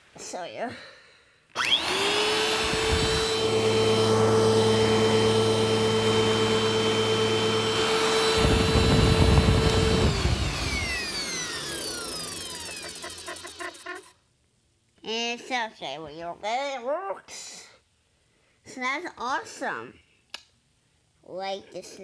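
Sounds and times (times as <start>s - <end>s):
vacuum cleaner motor whine: 1.6s - 13.8s.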